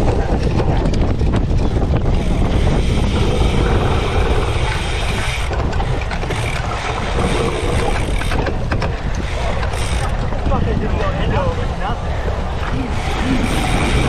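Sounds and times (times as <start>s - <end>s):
bike chain and frame rattling: 0.0s - 11.0s, 12.6s - 14.0s
wind buffeting microphone: 0.0s - 14.0s.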